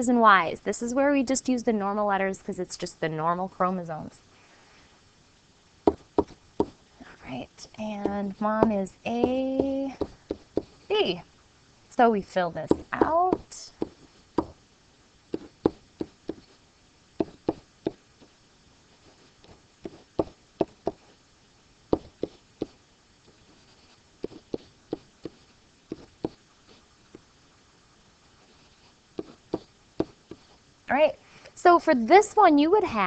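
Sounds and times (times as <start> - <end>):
stylus tapping on a surface: 5.9 - 6.8, 12.7 - 14.6, 19.8 - 21.0.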